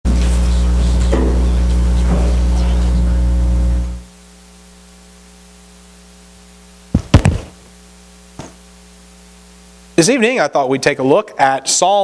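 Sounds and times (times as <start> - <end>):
electrical mains hum: 0.0 - 12.0
microphone handling thumps: 6.9 - 8.7.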